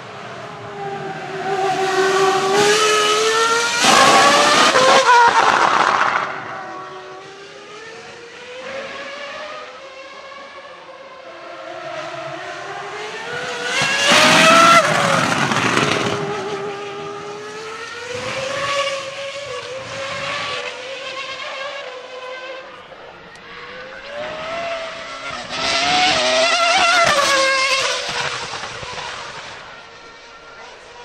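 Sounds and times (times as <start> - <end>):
racing car passing at high revs: 0.0 - 31.0.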